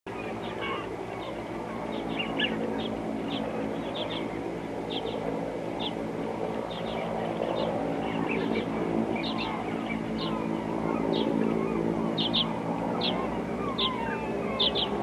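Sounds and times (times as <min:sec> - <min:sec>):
engine drone: 0:00.1 - 0:15.0
high bird chirps: 0:09.2 - 0:15.0.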